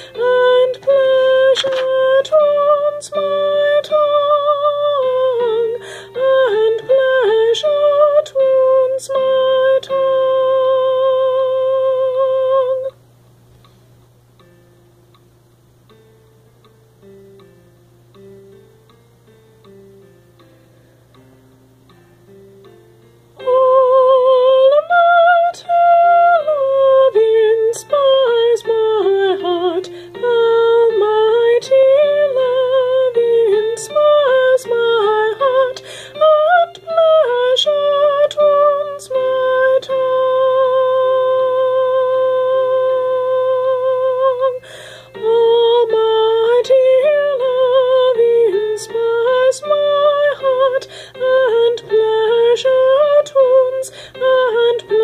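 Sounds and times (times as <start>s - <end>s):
woman singing with vibrato: 0.0s - 13.0s, 23.4s - 55.0s
instrumental accompaniment: 13.5s - 55.0s.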